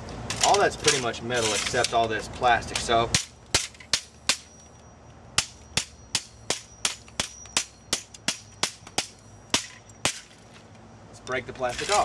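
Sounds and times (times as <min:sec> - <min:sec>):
hammer striking plastic and metal: 0:05.4 - 0:10.3.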